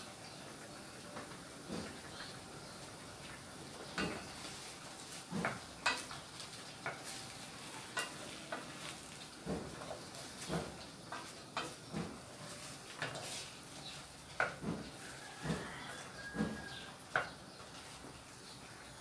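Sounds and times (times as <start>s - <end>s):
shrimp sizzling: 0.0s - 19.0s
spatula scraping frying pan: 4.0s - 15.1s.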